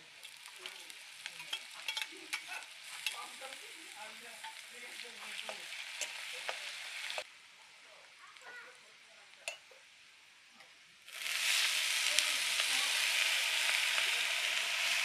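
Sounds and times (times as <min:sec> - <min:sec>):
onion sizzling in hot oil: 0:00.0 - 0:15.0
metal spatula scraping pan: 0:00.4 - 0:03.6.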